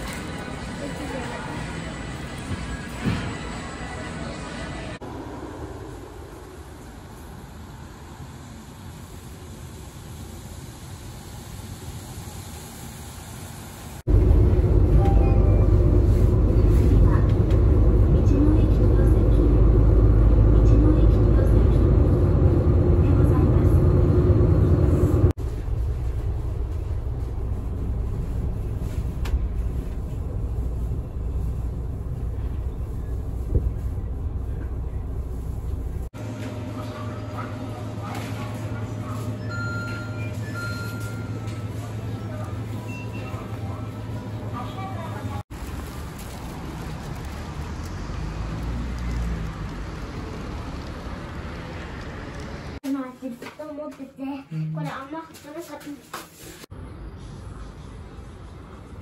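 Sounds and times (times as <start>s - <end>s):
low traffic rumble: 0.0s - 52.9s, 56.7s - 59.0s
engine drone: 11.6s - 45.4s, 46.2s - 52.8s
vehicle interior rumble: 14.1s - 36.8s.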